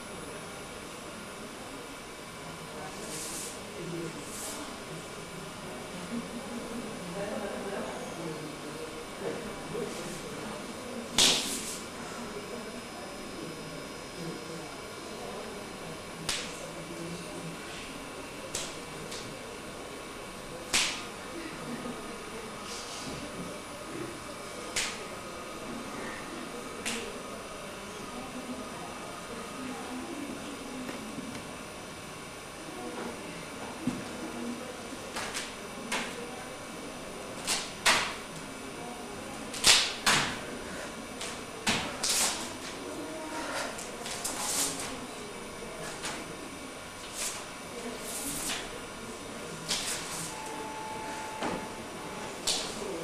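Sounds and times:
sharp slaps: 0:11.2 - 0:11.6, 0:16.3 - 0:16.5, 0:20.7 - 0:21.1, 0:24.8 - 0:25.0, 0:39.6 - 0:40.4.

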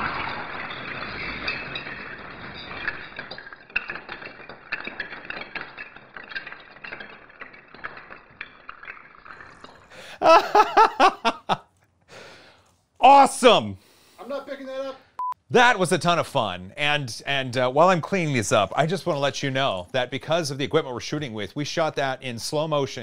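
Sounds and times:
man laughing heartily: 0:10.0 - 0:11.6.

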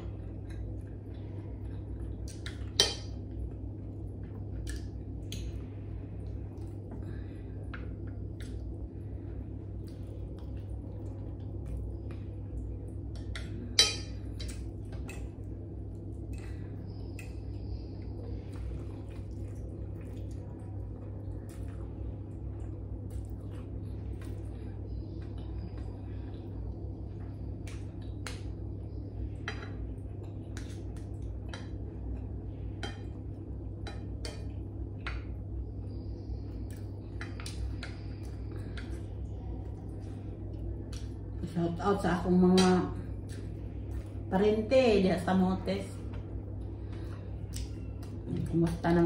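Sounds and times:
steady low hum: 0:00.0 - 0:49.0.

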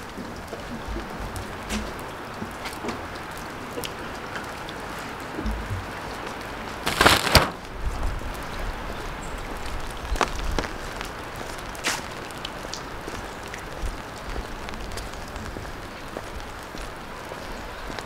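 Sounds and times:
light rain pattering on stone: 0:00.0 - 0:18.0
brief loud rustling: 0:06.8 - 0:07.7.

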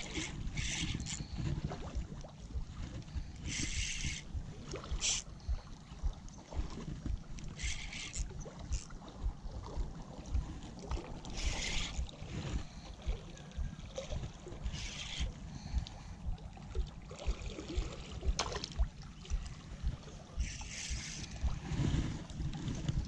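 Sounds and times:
wind buffeting microphone: 0:00.0 - 0:23.0
short hissing bursts: 0:20.4 - 0:21.4.

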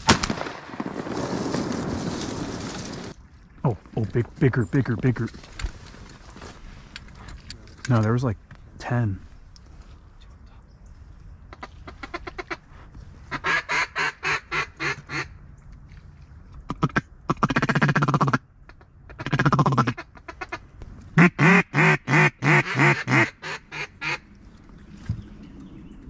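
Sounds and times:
duck call quacks: 0:21.2 - 0:24.2.

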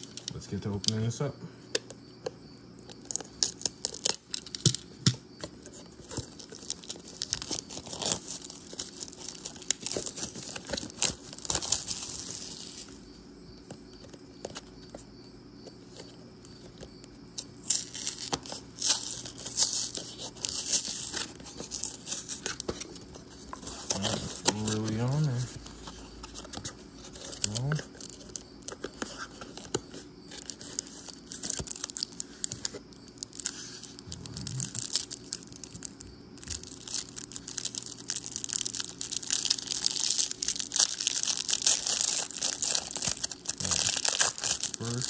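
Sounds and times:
plastic wrap crinkling and tearing: 0:02.9 - 0:04.8, 0:05.7 - 0:13.0, 0:17.4 - 0:45.0.

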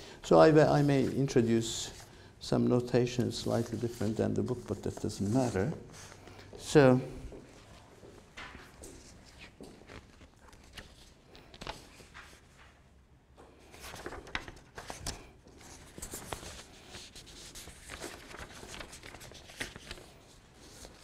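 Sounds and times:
paper rustling: 0:03.1 - 0:06.2, 0:07.4 - 0:12.8, 0:13.6 - 0:21.0.

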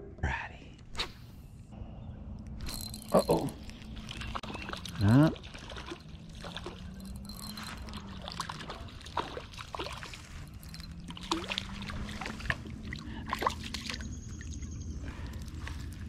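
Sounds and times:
water splashing and dripping: 0:02.6 - 0:16.0.

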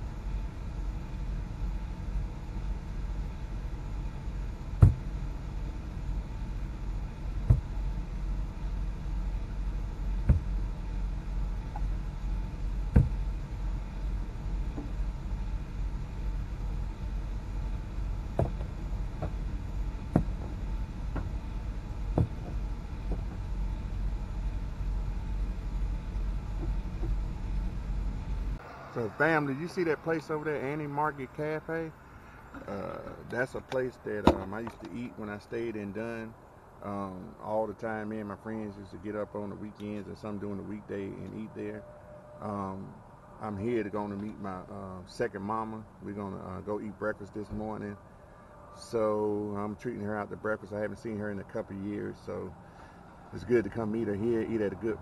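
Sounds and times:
vehicle road rumble: 0:00.0 - 0:55.0
tyres thumping over joints: 0:34.2 - 0:35.0.

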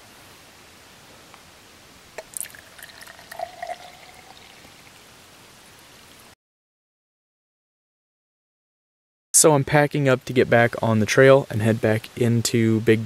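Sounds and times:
glass ringing: 0:02.2 - 0:04.8
coffee splashing into glass: 0:02.2 - 0:05.0.

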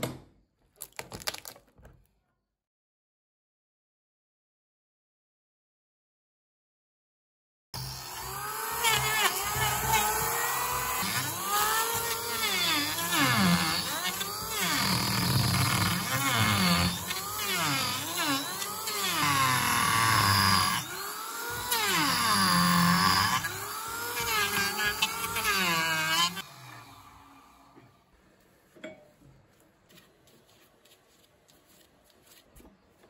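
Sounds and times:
electric hand planer cutting wood: 0:07.8 - 0:27.8.

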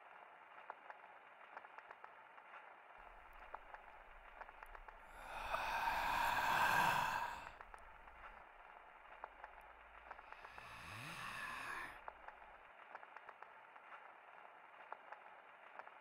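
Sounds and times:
person sighing: 0:05.1 - 0:07.5, 0:10.4 - 0:11.9.

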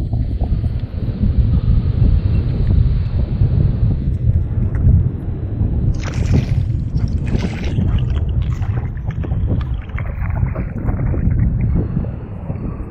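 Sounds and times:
wind rumble on microphone: 0:00.0 - 0:12.9
water dripping: 0:05.9 - 0:12.7
sea water splashing: 0:05.9 - 0:12.8.

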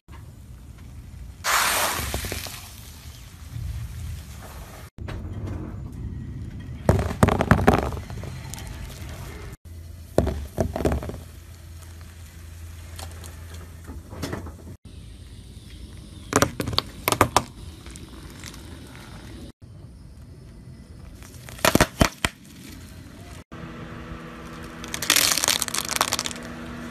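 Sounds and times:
tyre crushing brittle objects: 0:21.2 - 0:23.4, 0:24.5 - 0:26.6.

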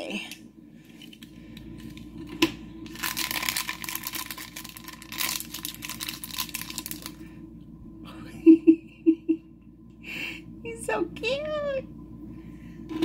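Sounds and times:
crinkly plastic rustling: 0:00.9 - 0:07.2.

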